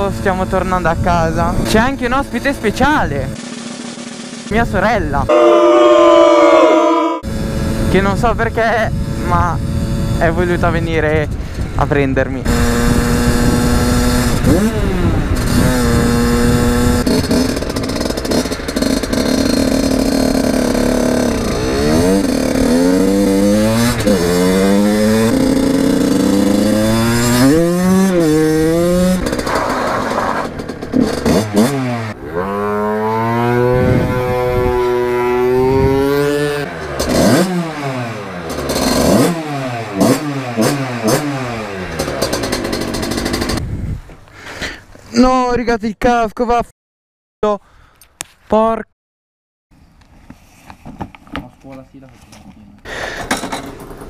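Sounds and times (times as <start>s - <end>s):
two-stroke motorcycle engine revving: 0.0s - 11.8s, 12.4s - 43.8s.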